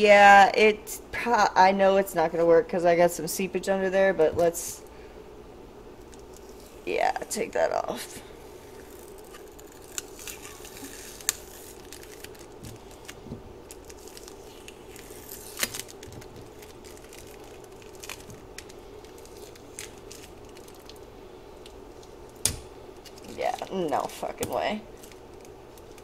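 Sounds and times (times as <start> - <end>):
steady low hum: 0.0 - 26.0
tape peeling and tearing: 8.7 - 23.8.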